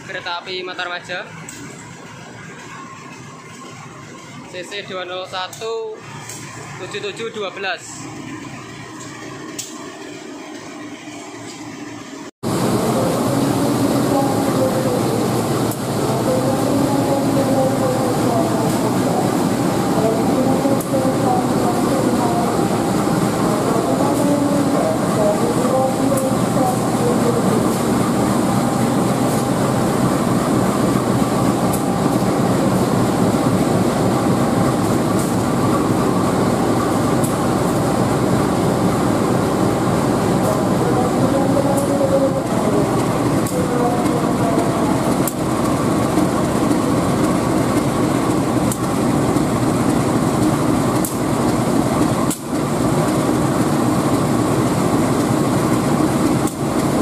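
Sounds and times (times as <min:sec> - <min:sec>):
locomotive diesel engine running: 0:11.8 - 0:57.0.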